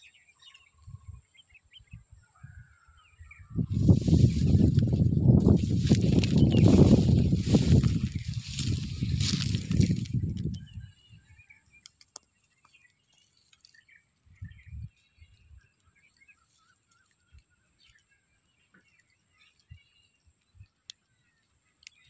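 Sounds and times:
faint bird chirps: 0:00.0 - 0:22.0
soft low bumps: 0:03.6 - 0:10.8.

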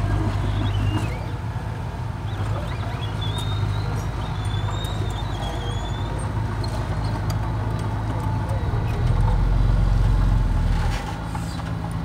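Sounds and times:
diesel bulldozer engine: 0:00.0 - 0:12.0
high squeal: 0:02.2 - 0:07.2.

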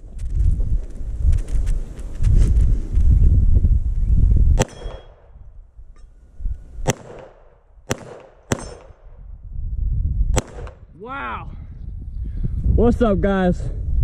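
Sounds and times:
pistol shots: 0:04.6 - 0:05.4, 0:06.8 - 0:09.2, 0:10.3 - 0:10.8.

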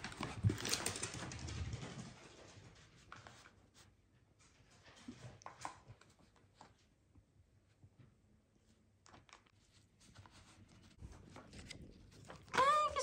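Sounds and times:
paper crinkling: 0:00.0 - 0:01.6, 0:09.0 - 0:13.0.

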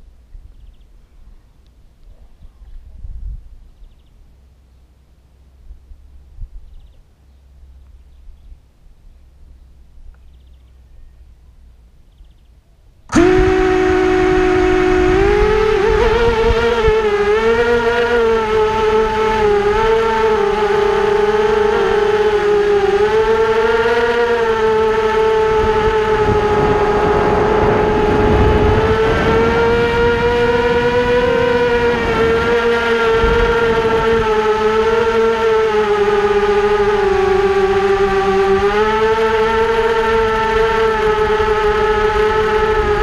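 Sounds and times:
drone motors whining: 0:13.1 - 0:43.0.

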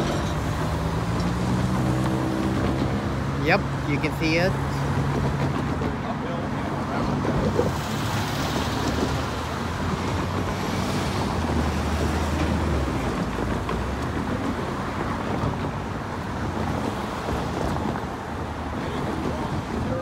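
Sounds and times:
road traffic passing: 0:00.0 - 0:20.0
wind buffeting microphone: 0:04.6 - 0:20.0.

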